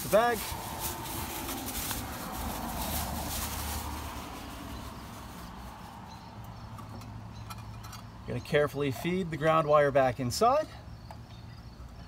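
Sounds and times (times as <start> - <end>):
plastic bag ripping and crinkling: 0.0 - 5.9.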